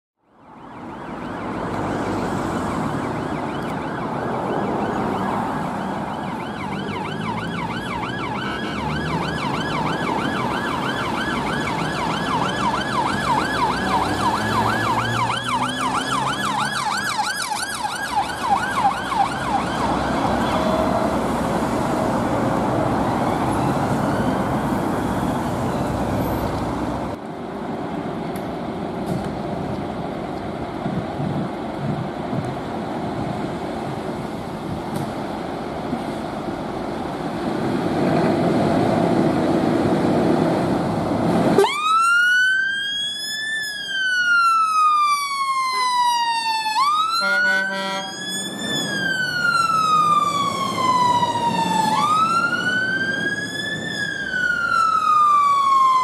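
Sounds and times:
police car siren: 0.2 - 26.6, 41.5 - 56.0
street noise: 0.2 - 56.0
traffic noise: 0.2 - 56.0.

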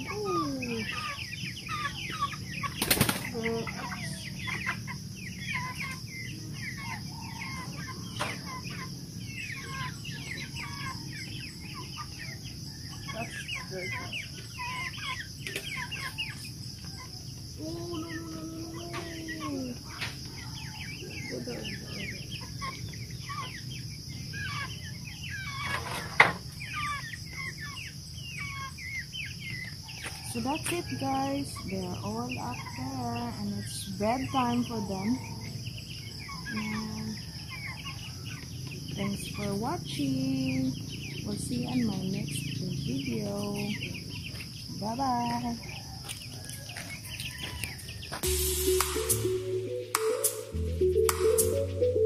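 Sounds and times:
chickens peeping and clucking: 0.0 - 52.0
crickets droning: 0.0 - 52.0
high-pitched drone: 48.2 - 52.0.

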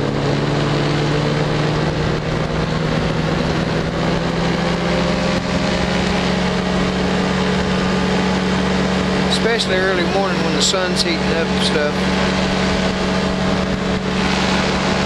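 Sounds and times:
engine and propeller droning: 0.0 - 15.0
rush of air: 12.0 - 15.0.

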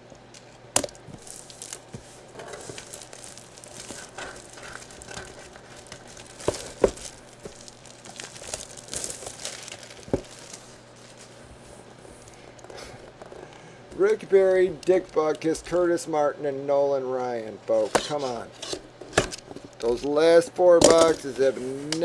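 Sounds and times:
plastic shrink wrap crinkling: 0.8 - 15.8.

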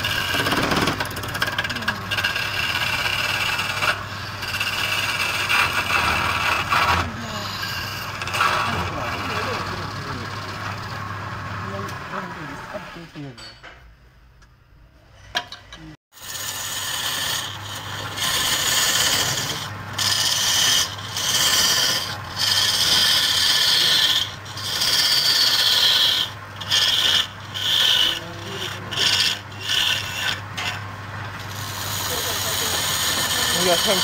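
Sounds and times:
chisel scraping wood on lathe: 0.0 - 13.2, 16.2 - 34.0.

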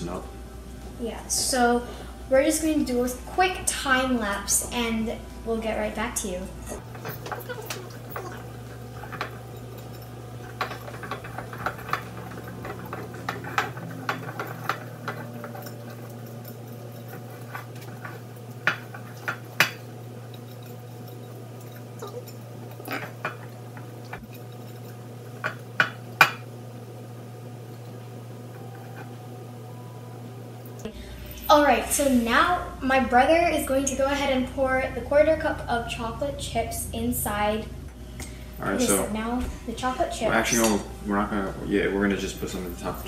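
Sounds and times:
low steady hum: 0.0 - 43.0
whisk scraping glass bowl: 6.8 - 26.5.

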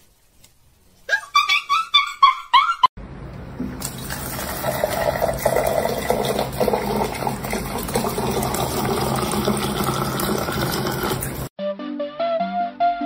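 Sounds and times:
water pouring into plastic cup: 3.8 - 11.5.

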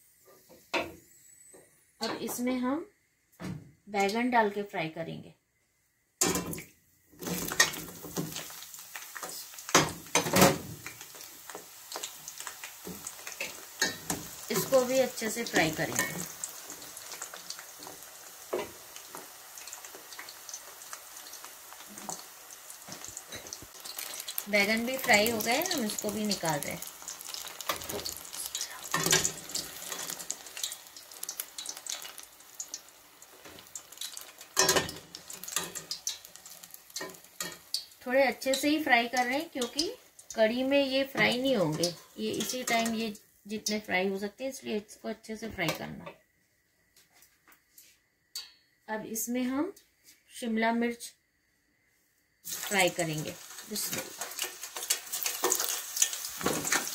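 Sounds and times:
vegetables deep-frying in oil: 6.2 - 46.1, 52.4 - 56.9
clinks and scrapes against pan: 28.9 - 30.2, 34.6 - 36.1.

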